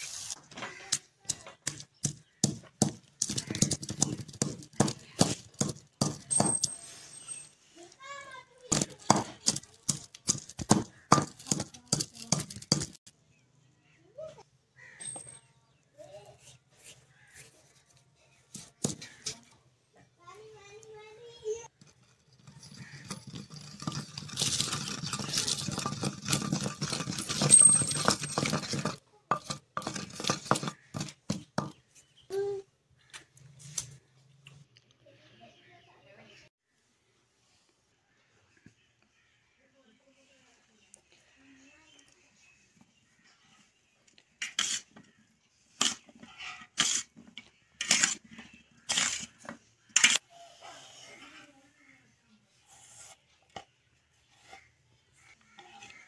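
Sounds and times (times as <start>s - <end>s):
pestle knocking on clay: 1.6s - 6.5s, 8.7s - 13.0s, 24.6s - 31.8s
pestle grinding in clay mortar: 1.6s - 6.7s, 8.7s - 13.0s, 21.8s - 32.0s, 45.8s - 50.2s
metal spoon mixing potatoes in bowl: 21.8s - 31.8s, 44.3s - 45.1s, 45.7s - 50.2s.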